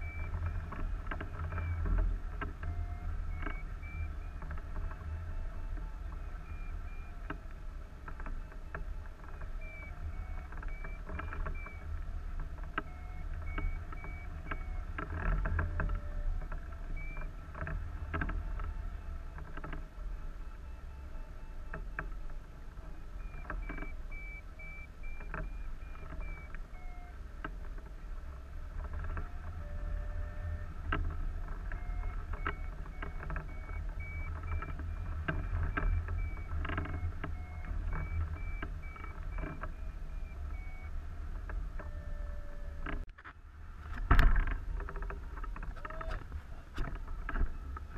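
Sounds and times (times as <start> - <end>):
variometer beeping: 0.0 - 43.2.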